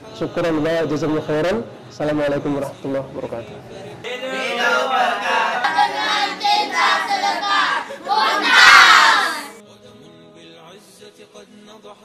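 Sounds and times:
boys calling out: 0:04.1 - 0:09.6
boys cheering loudly: 0:04.2 - 0:09.6.

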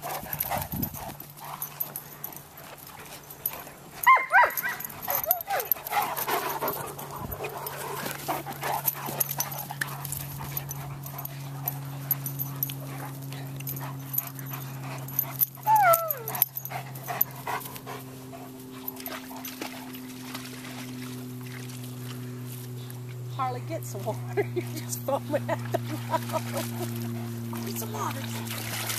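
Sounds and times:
dogs panting heavily: 0:00.0 - 0:23.3, 0:23.9 - 0:28.9
dogs scuffling: 0:00.0 - 0:28.9
steady low hum: 0:00.0 - 0:28.9
dog whining: 0:04.0 - 0:05.8, 0:15.4 - 0:16.7.

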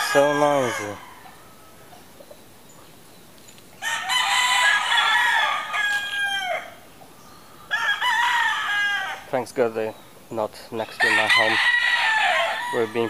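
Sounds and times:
roosters crowing: 0:00.0 - 0:02.6, 0:03.8 - 0:09.4, 0:10.7 - 0:13.0.

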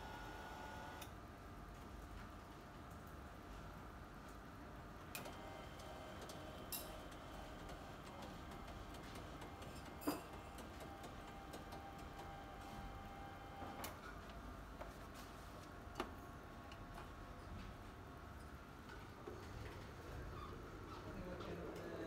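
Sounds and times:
faint electronic hum: 0:00.0 - 0:01.6.

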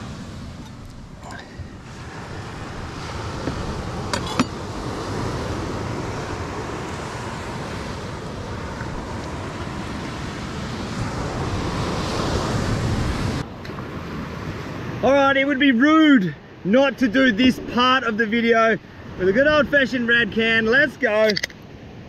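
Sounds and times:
wind on microphone: 0:00.0 - 0:15.0
surf washing onto beach: 0:00.0 - 0:15.8.

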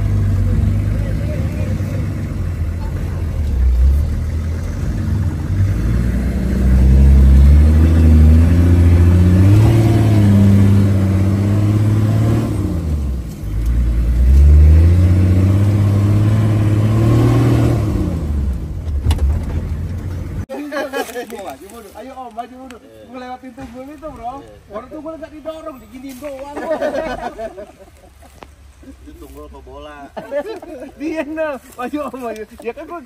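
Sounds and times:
off-road vehicle engine from cab: 0:00.0 - 0:20.5.

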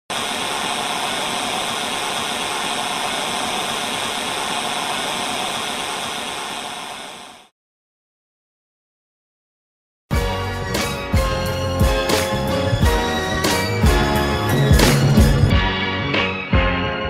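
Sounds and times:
static hiss: 0:00.1 - 0:07.5.

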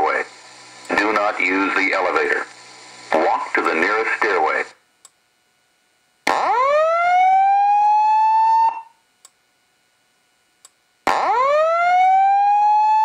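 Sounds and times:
fire alarm whoop tone: 0:06.3 - 0:09.0, 0:11.1 - 0:13.0.

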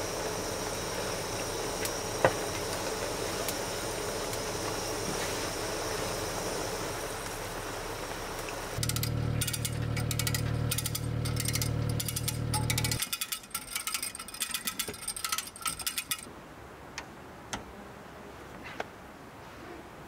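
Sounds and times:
low hum: 0:00.0 - 0:13.0
mechanical ratcheting clicks: 0:08.8 - 0:16.3.

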